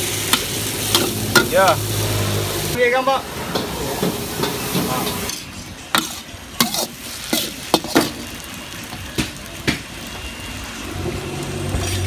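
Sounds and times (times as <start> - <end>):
noodles sizzling: 0.0 - 12.0
metal spatula scraping wok: 3.4 - 8.5, 10.8 - 12.0.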